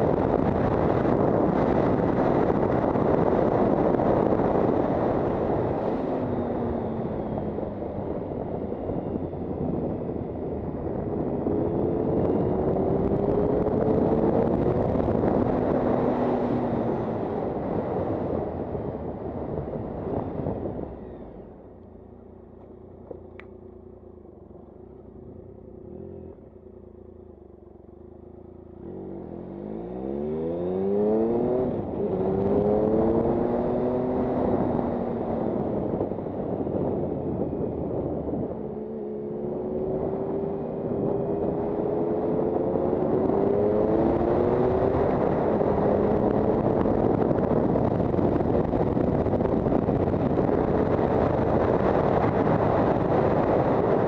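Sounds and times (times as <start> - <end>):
wind rush on microphone: 0.0 - 21.8, 29.7 - 54.0
motorcycle engine running: 0.0 - 29.7.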